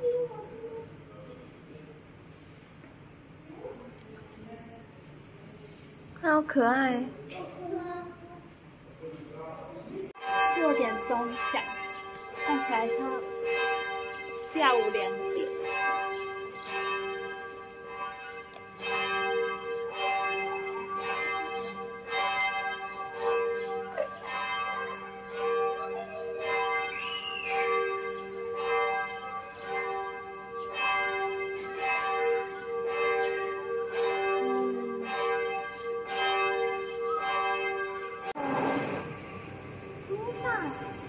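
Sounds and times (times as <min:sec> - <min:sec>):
church bells pealing: 0:10.1 - 0:41.0.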